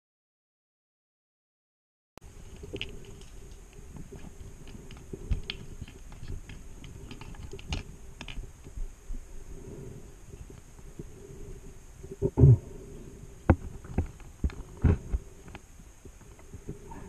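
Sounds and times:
small clicks and knocks underwater: 0:02.4 - 0:08.8, 0:13.5 - 0:16.8.

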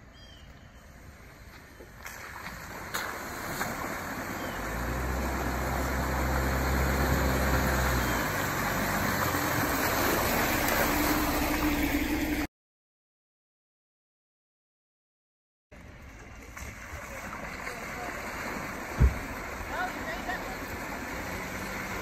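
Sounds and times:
low engine drone: 0:03.3 - 0:12.5.

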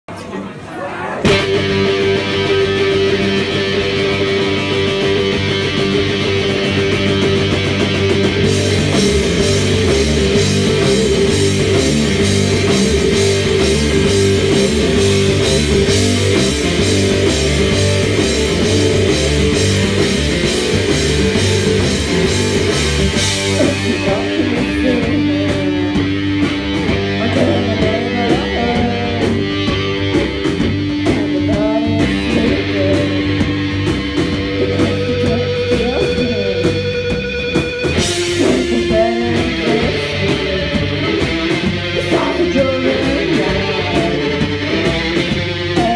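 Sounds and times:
rock band playing loud: 0:00.1 - 0:45.9
lead vocal singing: 0:23.4 - 0:26.2, 0:27.2 - 0:29.5, 0:31.1 - 0:33.4, 0:38.3 - 0:44.7, 0:45.6 - 0:45.9.

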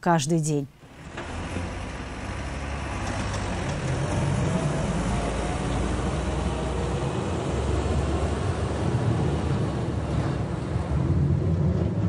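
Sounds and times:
tractor diesel engine running: 0:00.8 - 0:11.7
driving through floodwater: 0:00.9 - 0:12.0.

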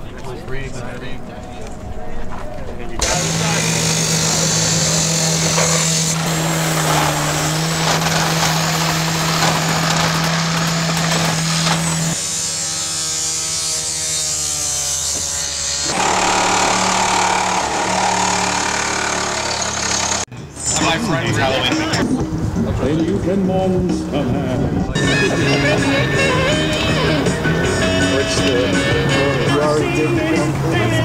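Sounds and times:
cut-off saw cutting steel: 0:03.0 - 0:20.3
reciprocating saw cutting steel: 0:03.0 - 0:20.3.

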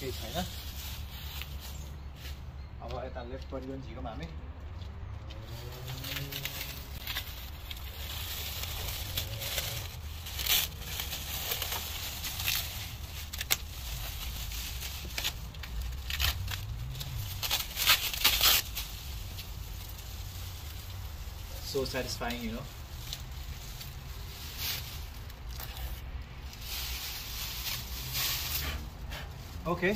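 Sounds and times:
masking tape pulled away: 0:05.4 - 0:14.0, 0:15.0 - 0:20.0
plastic sheet crinkling: 0:05.6 - 0:28.5.

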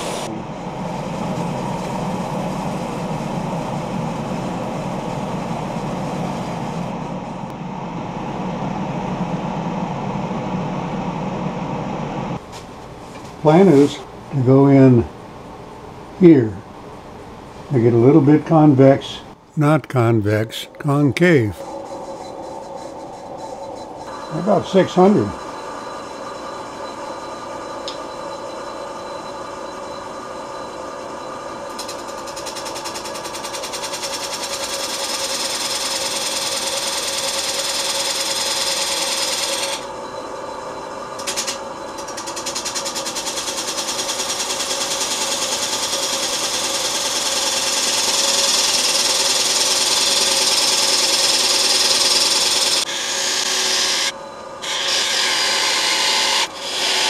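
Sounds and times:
tool cutting wood on lathe: 0:48.0 - 0:57.0.

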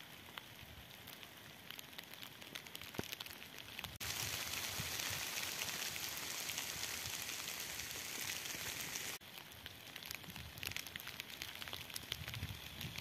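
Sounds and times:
hail ticking on tent fabric: 0:00.0 - 0:13.0
hail falling: 0:00.3 - 0:09.2.

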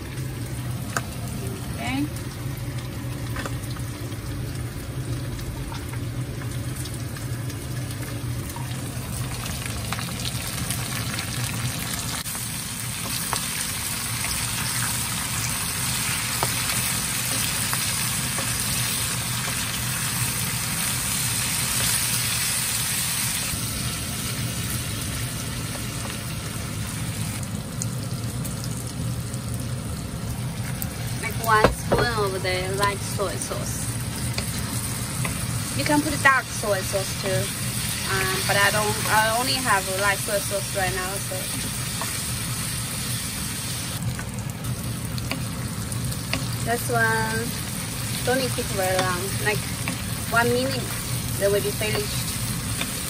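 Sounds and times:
food sizzling in a pan: 0:00.0 - 0:53.0
steady low hum: 0:23.0 - 0:53.0.

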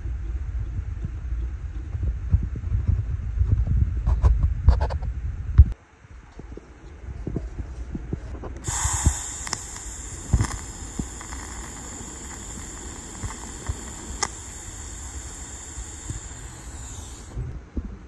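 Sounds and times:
sharp ticks: 0:08.6 - 0:17.4
welding arc hissing: 0:08.6 - 0:17.5.

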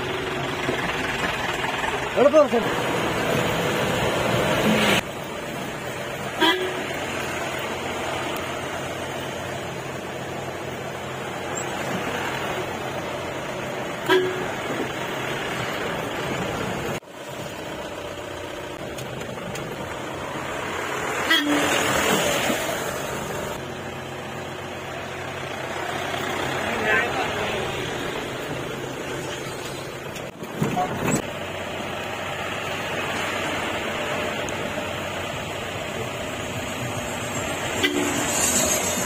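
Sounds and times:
off-road vehicle engine running: 0:00.0 - 0:21.5, 0:22.1 - 0:39.0
car horn toots: 0:06.4 - 0:06.9, 0:14.0 - 0:14.6, 0:21.2 - 0:21.9, 0:37.8 - 0:38.4.

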